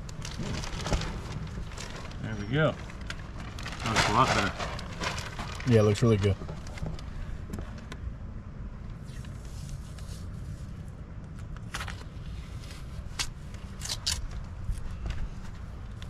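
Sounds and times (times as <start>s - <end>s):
steady low rumble: 0.0s - 16.0s
tape peeling with crackling rips: 12.7s - 14.9s.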